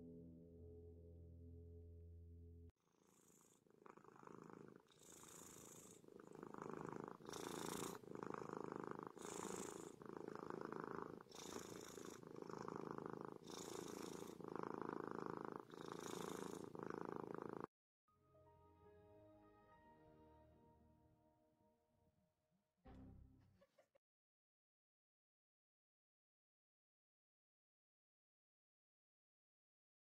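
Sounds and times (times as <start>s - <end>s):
cat purring: 2.9s - 17.7s.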